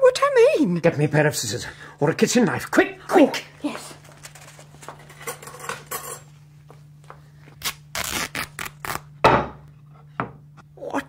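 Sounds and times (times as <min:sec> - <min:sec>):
sharp snips and rips: 0:07.6 - 0:09.1.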